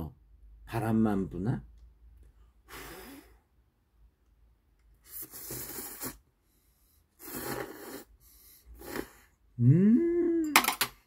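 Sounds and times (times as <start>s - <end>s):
man slurping noodles: 5.0s - 6.3s, 7.1s - 9.4s.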